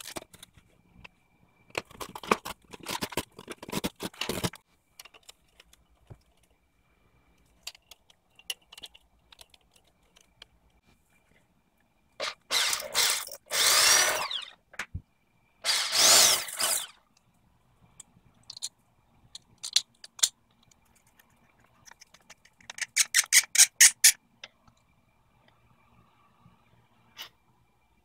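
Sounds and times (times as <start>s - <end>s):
cordless drill boring into tile grout: 12.2s - 14.6s, 15.6s - 16.9s.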